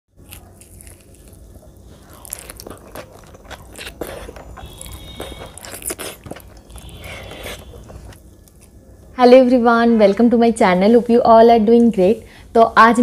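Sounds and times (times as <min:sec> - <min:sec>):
person chewing crunchy food: 0:00.1 - 0:08.9.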